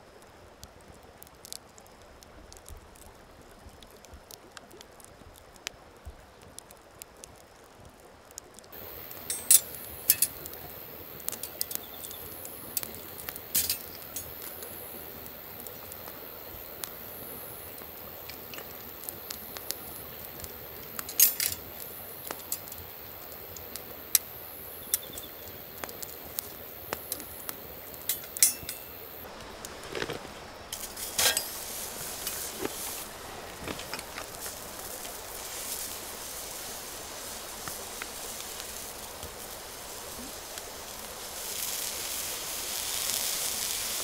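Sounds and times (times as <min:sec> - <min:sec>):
campfire crackling and popping: 0:00.0 - 0:44.0
steady high hiss: 0:08.7 - 0:44.0
light clinks: 0:09.0 - 0:10.4, 0:28.1 - 0:29.1.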